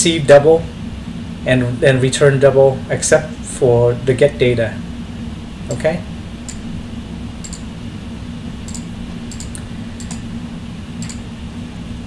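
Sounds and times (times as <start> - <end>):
low electrical hum: 0.0 - 12.0
keyboard and mouse clicks: 7.4 - 7.6, 8.7 - 10.2, 11.0 - 11.2.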